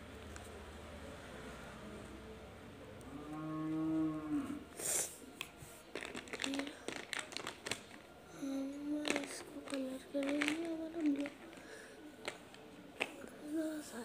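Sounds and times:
cow mooing: 0:03.1 - 0:04.7.

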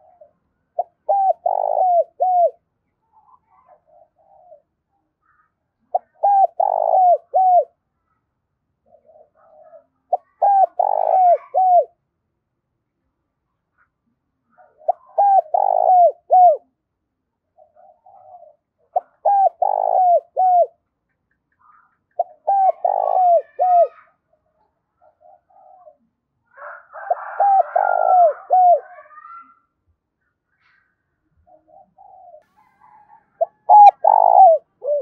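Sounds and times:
dove cooing: 0:00.0 - 0:02.6, 0:03.2 - 0:04.7, 0:05.9 - 0:07.8, 0:08.8 - 0:12.0, 0:14.5 - 0:16.8, 0:17.6 - 0:20.8, 0:22.2 - 0:24.1, 0:25.0 - 0:29.6, 0:31.5 - 0:35.0.

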